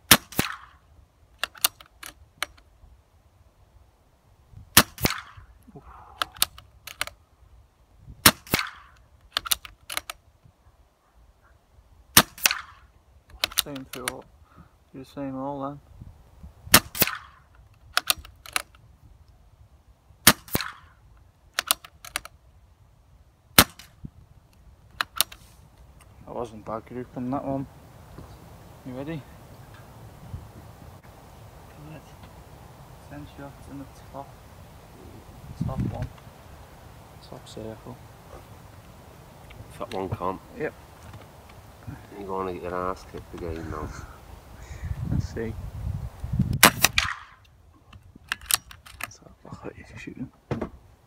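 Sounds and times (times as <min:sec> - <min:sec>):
pellet cracking on target board: 0:00.1 - 0:00.8, 0:04.8 - 0:05.5, 0:08.2 - 0:10.2, 0:12.1 - 0:14.2, 0:16.7 - 0:18.7, 0:20.3 - 0:20.9, 0:23.6 - 0:23.9, 0:46.6 - 0:47.4
rifle action clicks: 0:00.1 - 0:00.8, 0:01.4 - 0:02.7, 0:06.2 - 0:07.2, 0:08.2 - 0:10.2, 0:12.2 - 0:14.3, 0:16.8 - 0:18.8, 0:20.2 - 0:20.9, 0:21.5 - 0:22.4, 0:23.6 - 0:26.1, 0:46.6 - 0:49.2.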